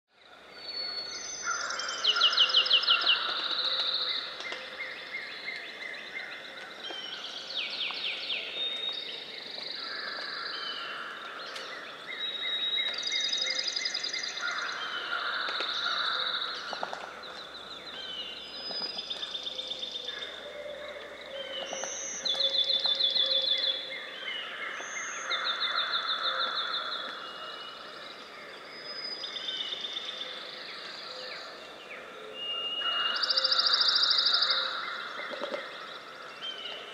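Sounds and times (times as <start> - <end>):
songbirds singing: 0.1 - 36.9.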